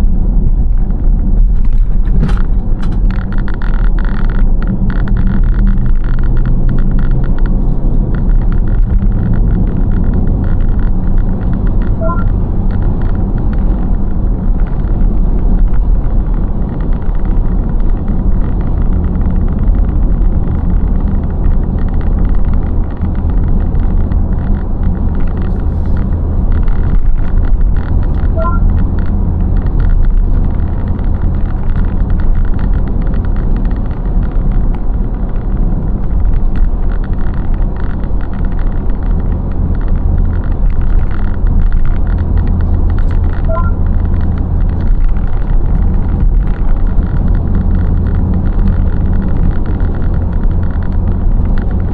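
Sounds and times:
car engine and road noise: 0.0s - 51.9s
electronic chime: 12.0s - 12.3s, 28.4s - 28.7s, 43.5s - 43.8s.

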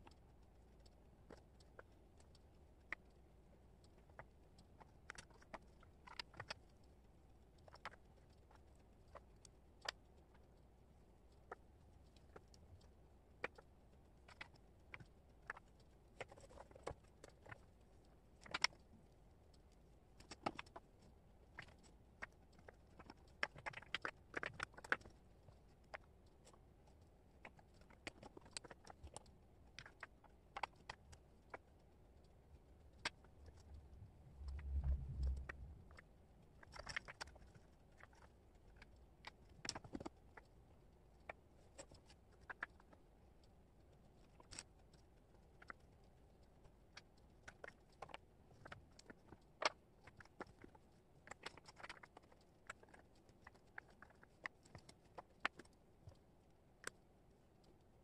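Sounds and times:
low rumble: 33.5s - 36.2s.

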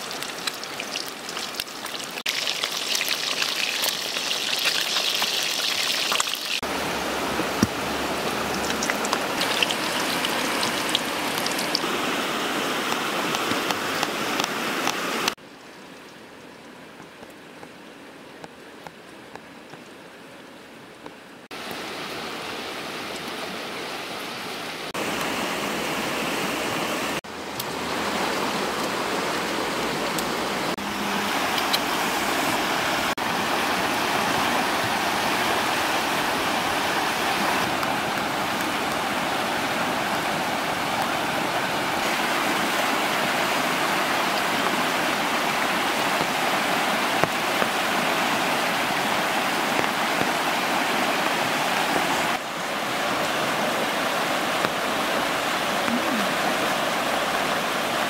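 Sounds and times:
fast-flowing river rushing: 5.4s - 15.4s, 21.6s - 58.0s.

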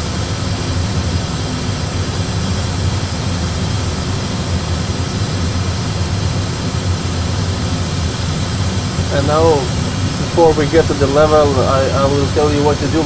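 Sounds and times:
low engine and airflow rumble: 0.0s - 13.0s
even hiss: 9.1s - 13.0s.

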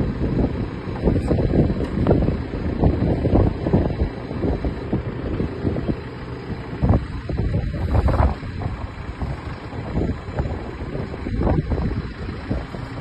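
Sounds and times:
machine engine running: 0.0s - 13.0s
wind buffeting microphone: 0.0s - 13.0s.

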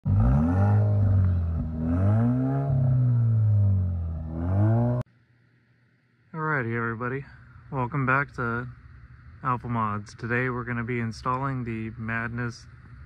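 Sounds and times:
car engine revving: 0.0s - 5.0s.

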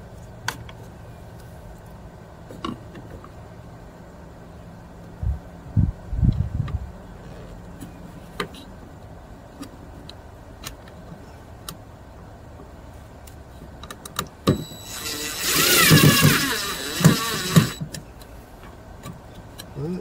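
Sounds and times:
cordless drill driving screw: 14.5s - 17.8s.

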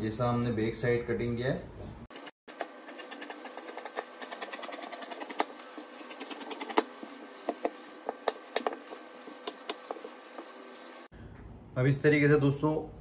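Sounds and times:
scissors snipping fabric: 2.5s - 5.6s.

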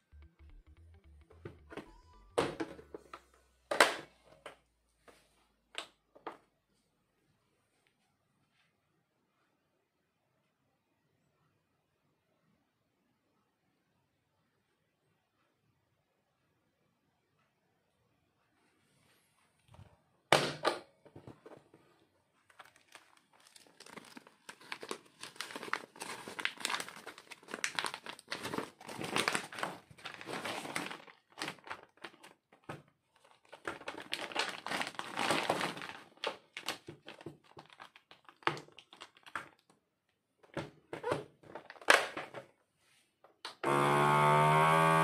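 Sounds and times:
plastic bag crinkling: 22.4s - 39.7s.

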